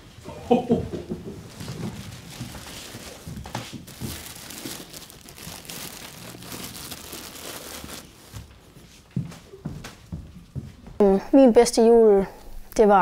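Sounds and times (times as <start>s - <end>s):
bag crinkling: 1.4s - 8.5s.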